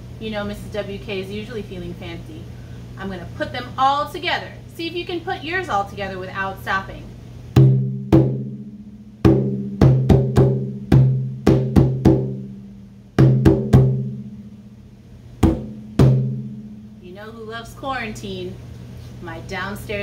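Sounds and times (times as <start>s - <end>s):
hand drum hits: 7.6s - 12.5s, 13.2s - 14.4s, 15.4s - 16.9s.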